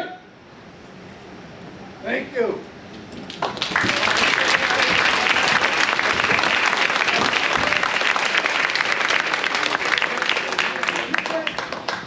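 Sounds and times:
large audience applauding: 3.2 - 12.0.

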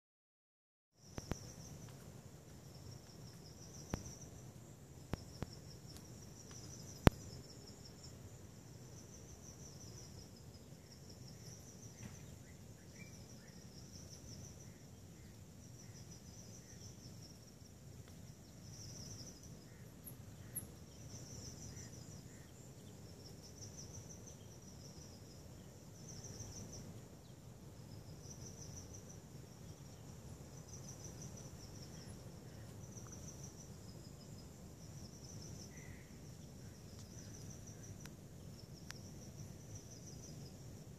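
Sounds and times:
insects chirping: 1.0 - 40.9.

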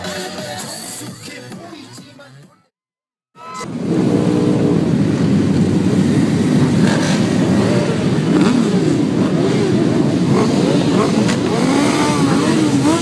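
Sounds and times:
motorcycles idling and revving: 3.6 - 13.0.

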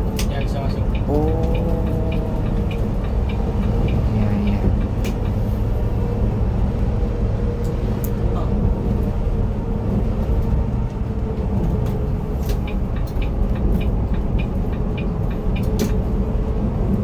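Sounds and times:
engine and road rumble: 0.0 - 17.0
light clicking rattles: 11.6 - 16.2.

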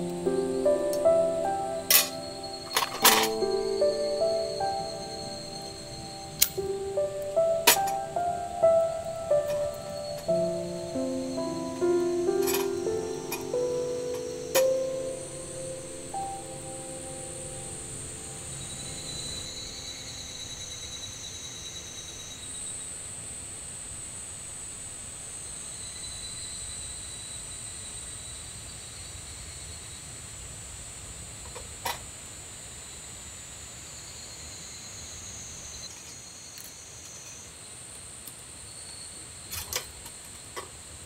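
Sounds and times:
insects singing: 0.0 - 30.5.

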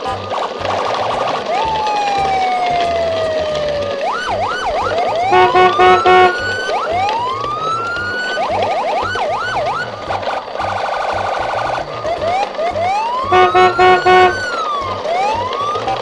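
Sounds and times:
siren wails and whoops: 1.5 - 10.0, 12.0 - 16.0
loud beeping tones: 5.3 - 6.5, 13.3 - 14.5
background music with beat: 13.3 - 14.4.

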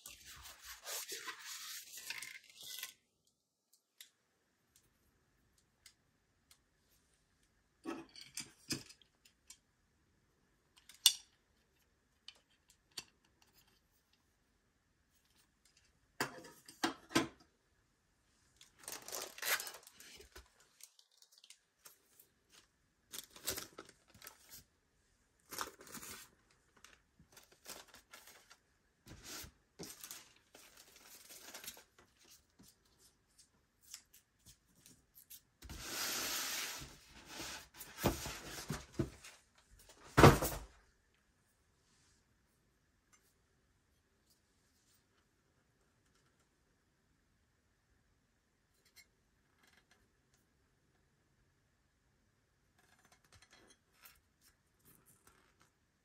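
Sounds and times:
foam and cardboard rustling: 35.7 - 39.3.

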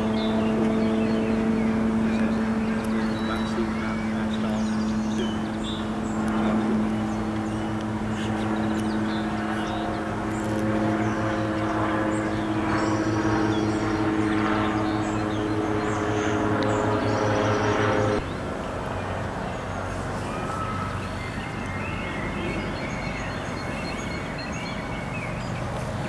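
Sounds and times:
steady engine drone: 0.0 - 26.0.

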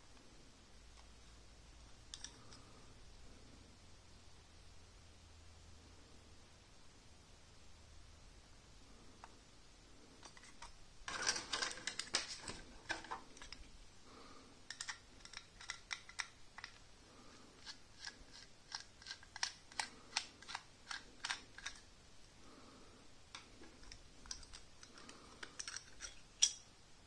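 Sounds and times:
small metal clicks and taps: 2.1 - 2.6, 14.7 - 16.8, 23.3 - 26.6.

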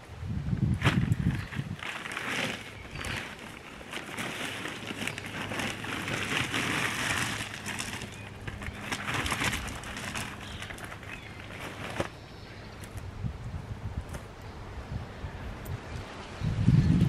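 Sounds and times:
gravel crunching and rattling: 0.6 - 13.1.

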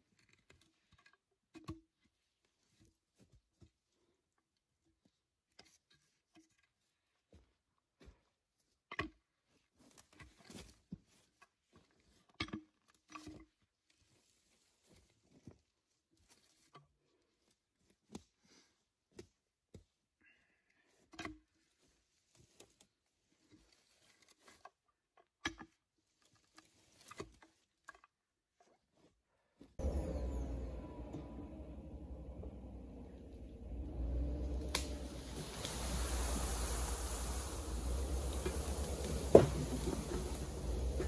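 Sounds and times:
rustling in dry leaves: 29.8 - 41.0.

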